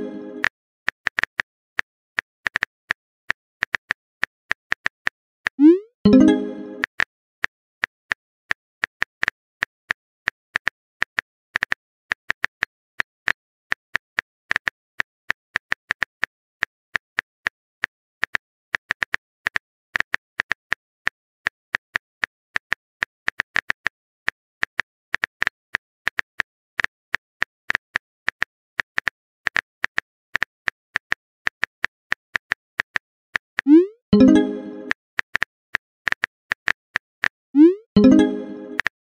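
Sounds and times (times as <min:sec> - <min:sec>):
message sent pop: 0:37.6 - 0:38.9.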